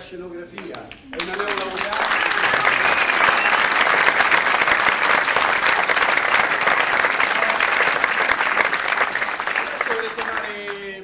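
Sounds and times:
audience applauding: 0.6s - 11.0s.

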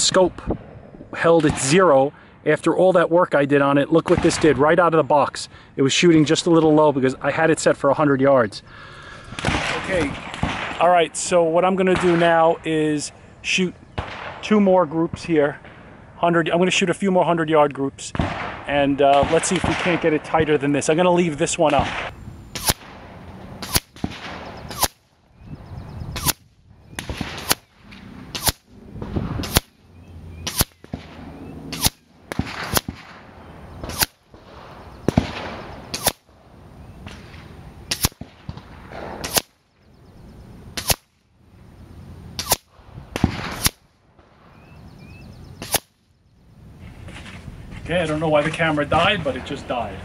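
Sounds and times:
gunshot cracks: 9.4s - 10.9s, 14.0s - 14.5s, 18.1s - 20.2s, 21.7s - 25.0s, 28.3s - 29.7s, 30.5s - 33.2s, 33.8s - 36.3s, 37.1s - 39.5s, 40.8s - 41.1s, 42.4s - 43.8s.

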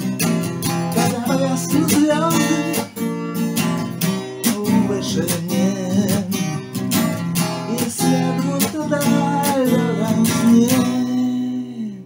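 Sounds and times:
acoustic guitar strumming: 0.0s - 12.0s
person singing: 0.8s - 3.0s, 4.4s - 6.7s, 7.6s - 12.0s.

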